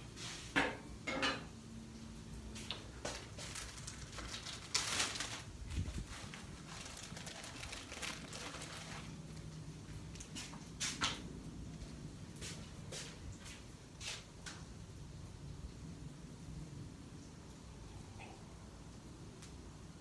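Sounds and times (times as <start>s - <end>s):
tortilla rustling on griddle: 0.0s - 0.6s, 2.5s - 14.8s
food crackling on griddle: 0.0s - 16.2s
grease popping: 1.0s - 11.2s.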